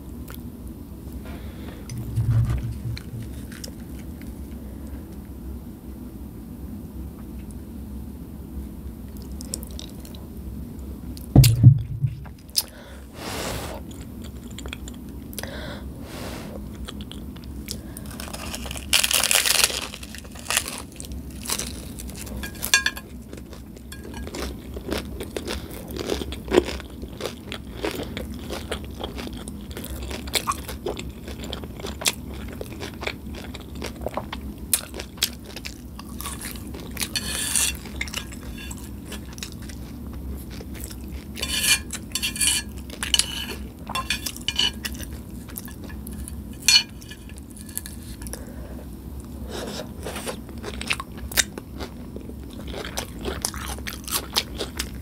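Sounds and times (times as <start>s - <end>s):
crunchy taco shells being chewed: 9.1s - 10.4s, 13.8s - 15.6s, 16.6s - 55.0s.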